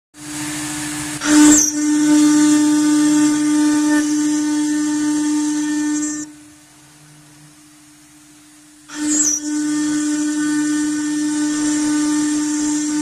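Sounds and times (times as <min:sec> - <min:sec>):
router spindle whine: 0:00.2 - 0:07.6, 0:08.6 - 0:13.0
brief screech: 0:01.2 - 0:04.1, 0:08.9 - 0:13.0.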